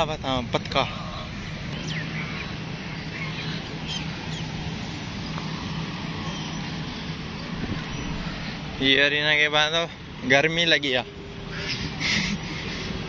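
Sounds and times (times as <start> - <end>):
steady low hum: 0.0 - 8.9
faint bird calls: 0.9 - 4.7, 11.4 - 13.0.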